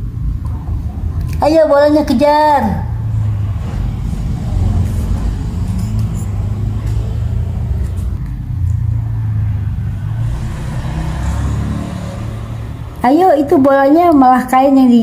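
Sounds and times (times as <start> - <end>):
low rumble: 2.9 - 11.0.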